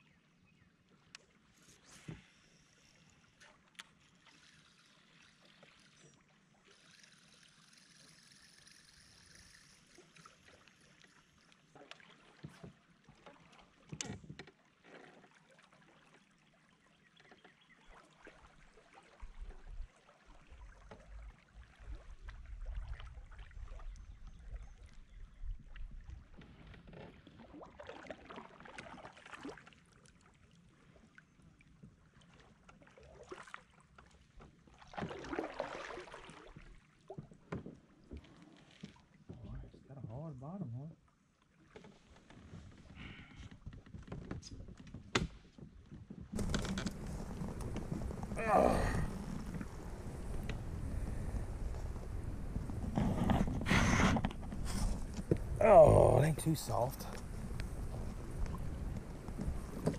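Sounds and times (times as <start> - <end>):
water sounds: 0.9 - 25.0, 32.1 - 39.4, 46.4 - 59.9
kayak knocks: 43.6 - 55.6, 57.1 - 59.9
wind rumbling on microphone: 46.2 - 59.9.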